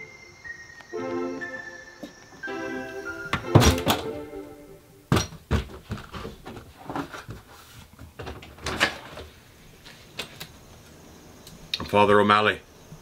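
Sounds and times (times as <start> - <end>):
front door opening: 2.0 - 7.1, 8.2 - 9.4
door latch and blinds rattling: 8.2 - 9.2.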